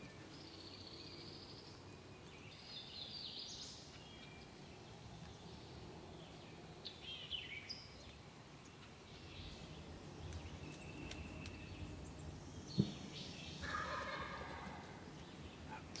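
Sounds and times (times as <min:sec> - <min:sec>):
songbirds chirping: 0:00.0 - 0:16.0
sharp low thump: 0:12.7 - 0:13.1
turkey gobble: 0:13.6 - 0:15.0.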